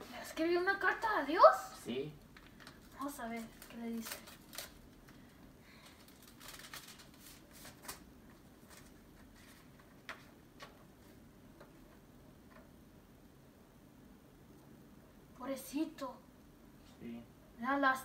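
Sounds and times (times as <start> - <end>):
paper rustling: 2.4 - 11.2.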